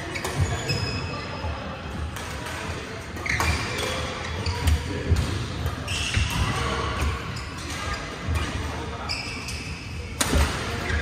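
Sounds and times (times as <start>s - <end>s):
shoes squeaking on sports floor: 0.0s - 1.6s, 3.2s - 5.1s, 5.8s - 10.0s.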